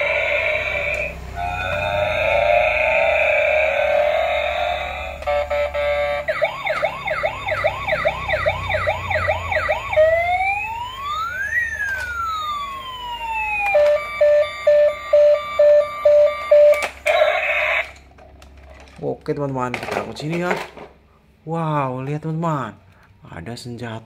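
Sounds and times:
rapid electronic beeping: 0:00.0 - 0:12.7, 0:13.4 - 0:16.9
toy siren wail: 0:00.0 - 0:18.0
toy siren whoops: 0:00.0 - 0:18.0.

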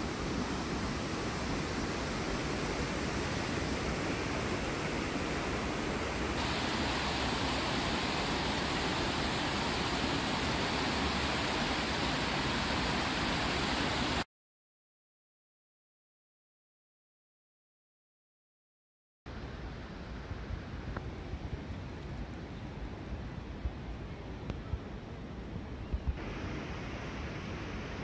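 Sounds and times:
river rushing over rocks: 0:00.0 - 0:14.2.

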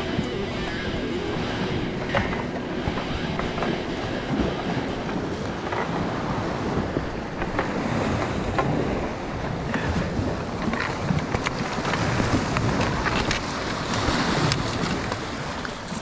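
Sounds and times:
knocks and clicks: 0:00.0 - 0:06.1
surf: 0:00.0 - 0:16.0
wind rumbling on microphone: 0:00.0 - 0:16.0.

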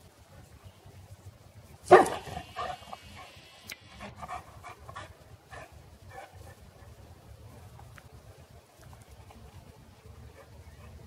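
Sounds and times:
dog barking: 0:01.9 - 0:03.4.

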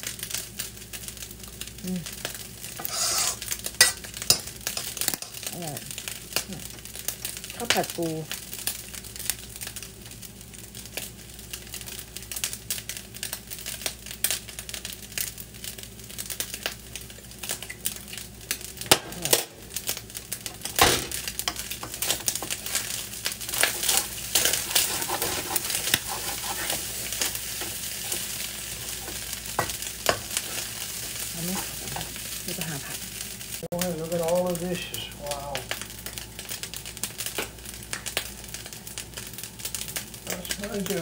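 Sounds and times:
rice sizzling in wok: 0:00.0 - 0:41.0
utensils scraping and knocking pan: 0:02.8 - 0:05.3, 0:23.5 - 0:30.8.

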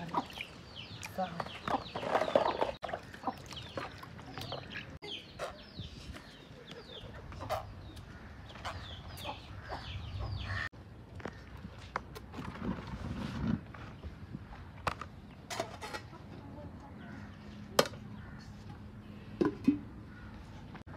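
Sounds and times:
chickens clucking: 0:01.4 - 0:10.6.

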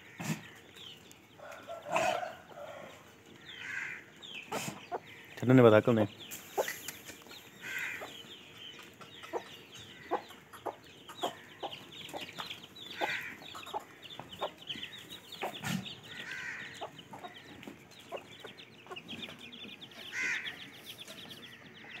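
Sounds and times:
chickens clucking: 0:00.0 - 0:22.0
small birds chirping: 0:00.0 - 0:22.0.

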